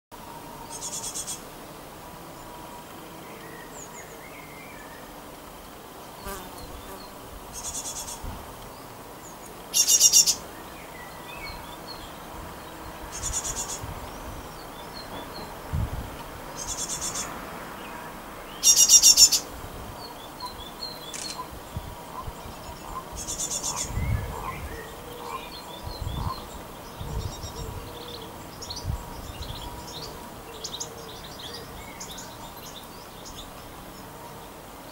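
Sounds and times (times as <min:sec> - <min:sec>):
bird calling in pulsed bursts: 0:09.7 - 0:10.4.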